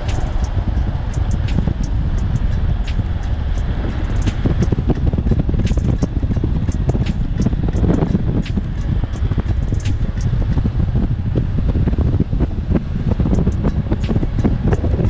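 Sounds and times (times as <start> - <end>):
sharp clicks: 0.0 - 10.6
electric scooter running: 0.0 - 15.0
road rumble: 0.0 - 15.0
wind buffeting microphone: 0.0 - 15.0.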